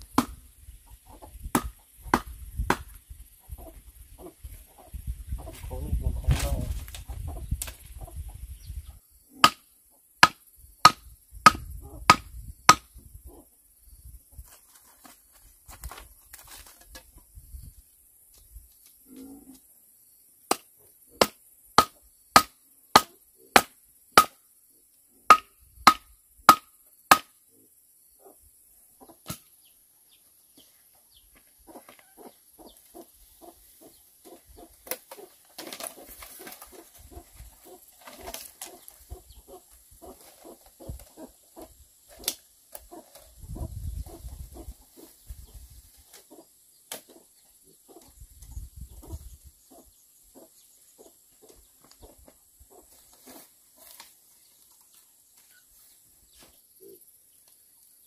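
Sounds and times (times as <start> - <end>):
hens clucking: 0.8 - 2.1, 3.4 - 5.8, 31.5 - 46.5.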